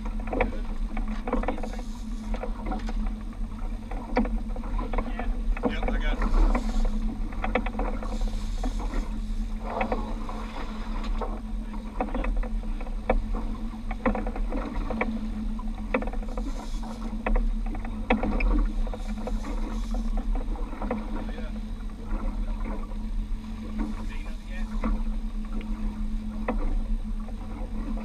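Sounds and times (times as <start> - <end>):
sharp clicks and knocks: 0.0 - 10.4, 11.0 - 21.4
outboard motor running: 0.0 - 28.0
water washing against hull: 0.0 - 28.0.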